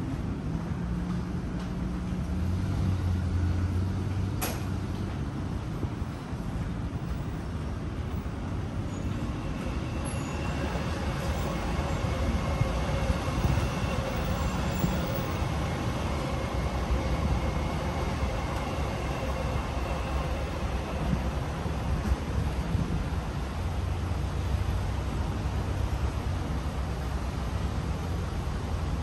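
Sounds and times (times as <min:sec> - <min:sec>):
train rumbling on tracks: 0:00.0 - 0:29.0.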